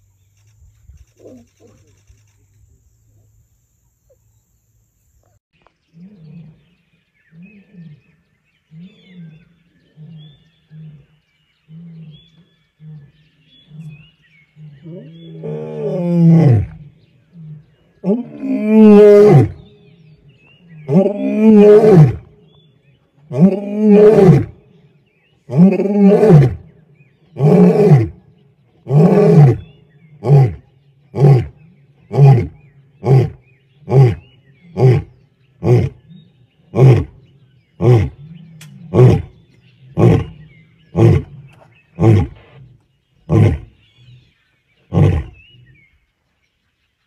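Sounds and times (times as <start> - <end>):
lion roaring: 20.7 - 22.3, 23.3 - 24.6, 27.3 - 28.2, 28.8 - 37.2, 37.8 - 42.7, 44.9 - 45.8.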